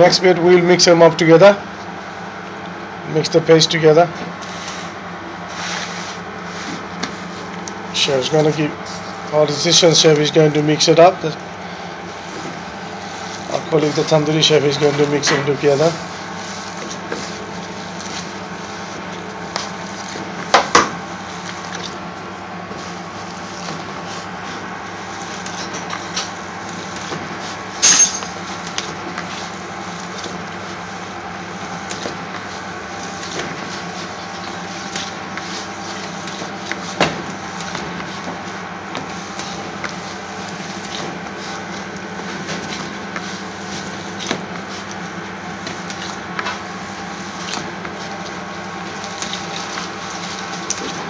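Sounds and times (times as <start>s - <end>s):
steady background hum: 0.0s - 51.0s
mince squelching in a bowl: 28.3s - 51.0s.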